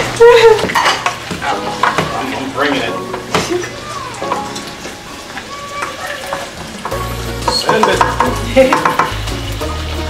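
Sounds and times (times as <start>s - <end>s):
vegetables sizzling in a pan: 0.0s - 10.0s
spoon clicking against pan: 6.8s - 9.2s
background music with deep bass: 6.9s - 10.0s.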